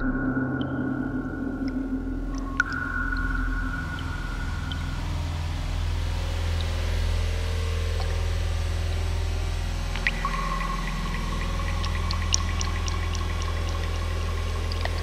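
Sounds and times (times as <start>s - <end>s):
low held tone: 0.0s - 6.8s, 9.9s - 15.0s
deep steady rumble: 0.0s - 15.0s
faint ticks: 9.9s - 15.0s.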